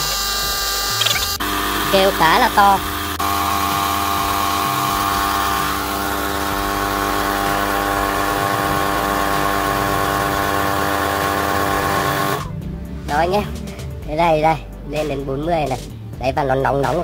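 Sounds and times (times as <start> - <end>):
electric tyre inflator droning: 0.0 - 12.7.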